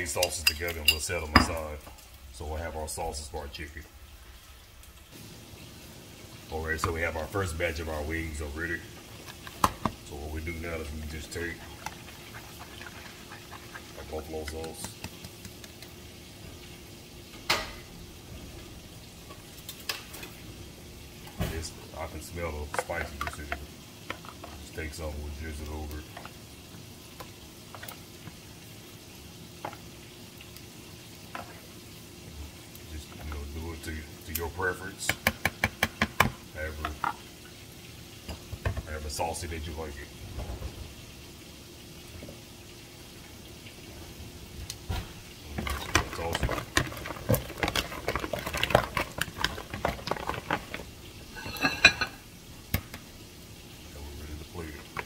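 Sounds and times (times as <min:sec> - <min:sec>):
low background hiss: 0:00.0 - 0:55.0
plate clinking: 0:51.3 - 0:52.2.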